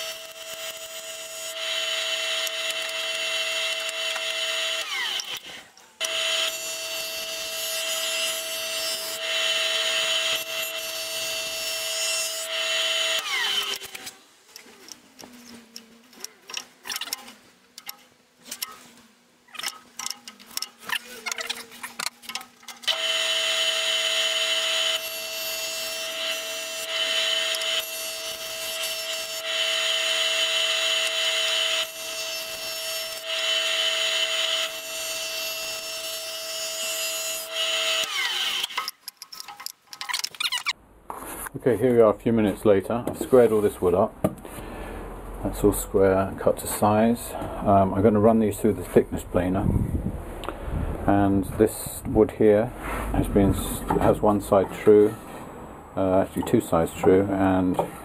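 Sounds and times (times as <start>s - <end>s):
electric planer humming: 0.0s - 13.7s, 22.9s - 36.1s.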